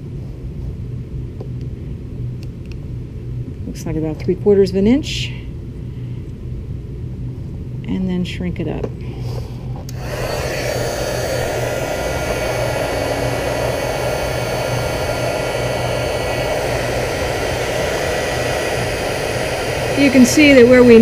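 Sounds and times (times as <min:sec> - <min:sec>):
fan motor hum: 0:00.0 - 0:21.0
heat gun blowing hot air: 0:09.9 - 0:21.0.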